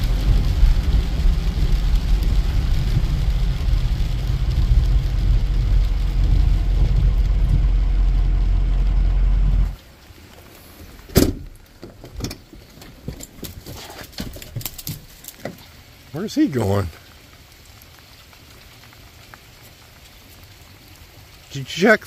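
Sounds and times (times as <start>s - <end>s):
diesel pickup rumbling: 0.0s - 9.8s
rain patter: 0.0s - 22.0s.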